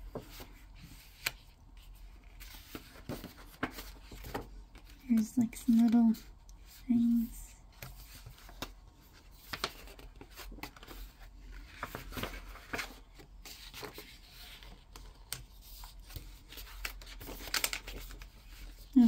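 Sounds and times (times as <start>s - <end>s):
book pages rustling: 0.0s - 19.0s
pages flapping: 7.8s - 18.8s.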